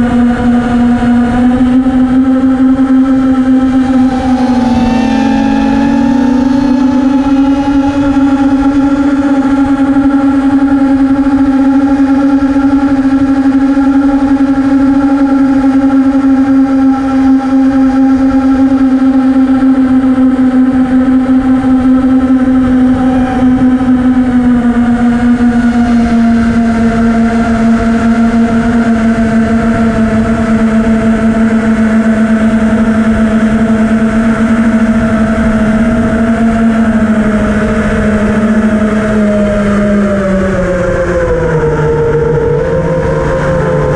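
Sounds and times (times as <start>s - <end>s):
quadcopter motors whining: 0.0s - 43.9s
wind rushing: 3.1s - 9.9s.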